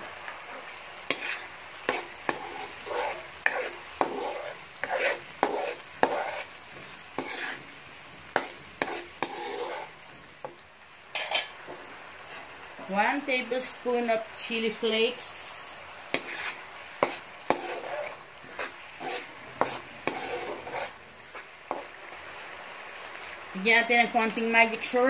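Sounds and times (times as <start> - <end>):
vegetables sizzling: 0.0 - 25.0.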